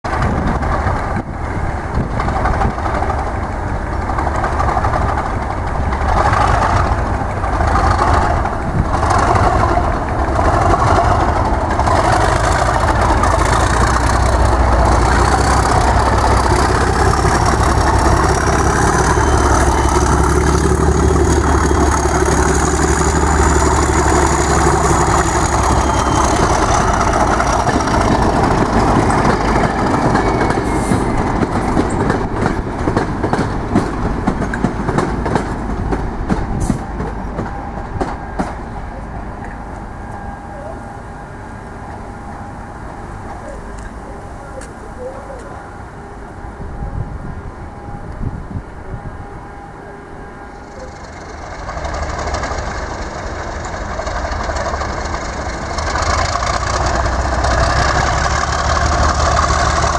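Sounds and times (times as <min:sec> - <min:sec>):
diesel locomotive engine running: 0:00.1 - 0:59.9
high whistle: 0:18.9 - 0:20.4, 0:25.2 - 0:27.0.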